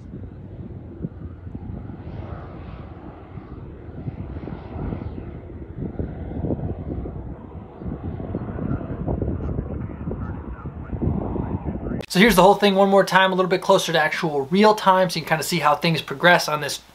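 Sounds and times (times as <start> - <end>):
distant propeller plane drone: 0.0 - 16.6.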